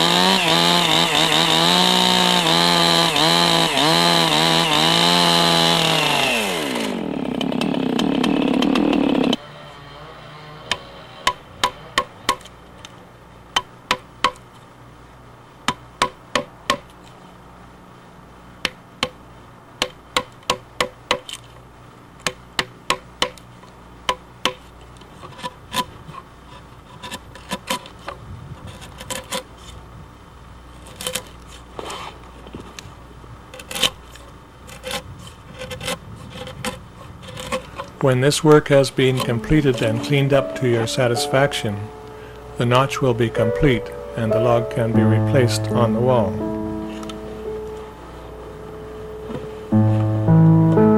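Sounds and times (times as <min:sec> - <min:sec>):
chainsaw cutting log: 0:00.0 - 0:09.6, 0:34.7 - 0:37.7.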